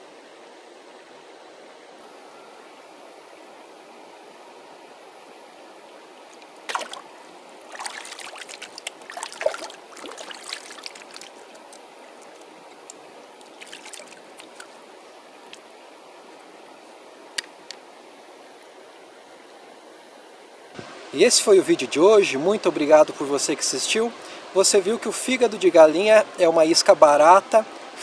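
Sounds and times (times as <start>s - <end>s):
flowing stream hiss: 0.0s - 28.0s
hands splashing in water: 6.6s - 7.1s, 7.7s - 11.8s, 13.4s - 14.8s.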